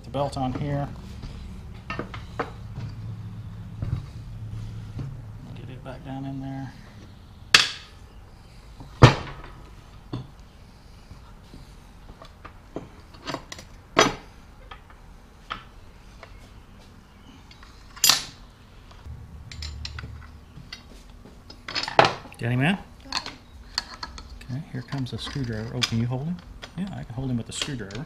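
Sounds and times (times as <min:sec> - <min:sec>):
metal parts clanking on steel: 0:19.4 - 0:20.9, 0:21.5 - 0:22.3, 0:23.1 - 0:26.8.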